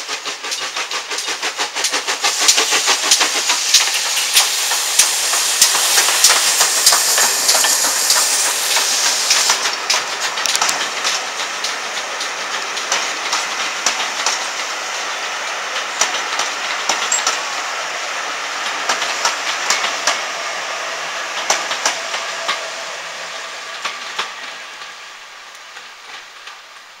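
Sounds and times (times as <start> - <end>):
train rolling noise: 0.0 - 27.0
train wheels clacking: 0.0 - 27.0.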